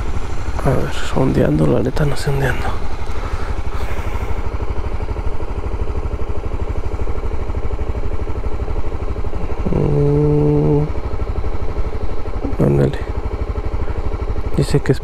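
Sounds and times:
motorcycle engine idling: 0.0s - 15.0s
steady tone: 9.2s - 14.5s.

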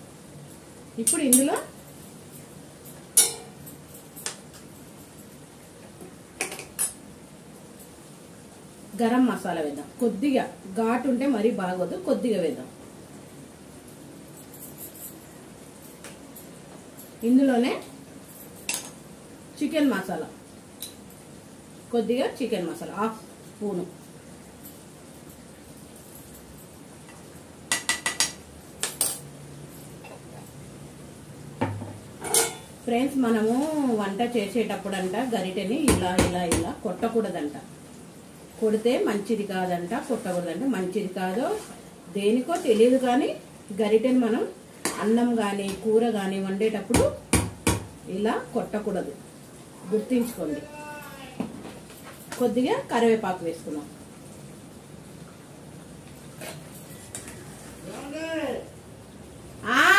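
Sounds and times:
metal ladle clanging on pan: 3.2s - 3.6s, 31.6s - 32.7s.

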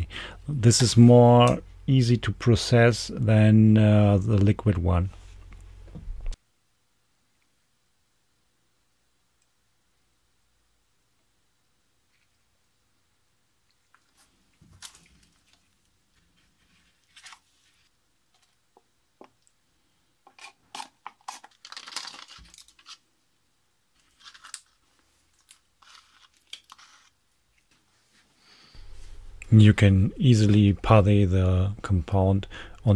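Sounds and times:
epoxy stirred and scraped in cup: 20.2s - 21.6s.

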